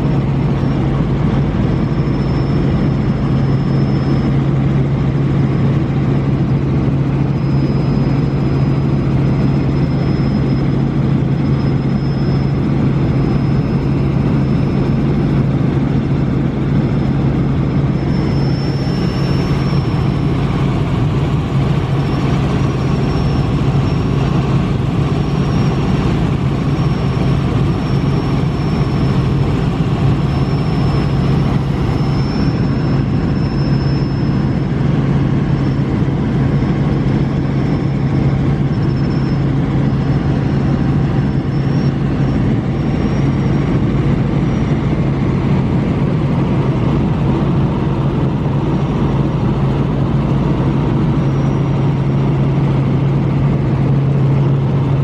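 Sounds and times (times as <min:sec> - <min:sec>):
airliner engines humming: 0:00.0 - 0:55.0
thin high whine: 0:00.0 - 0:55.0.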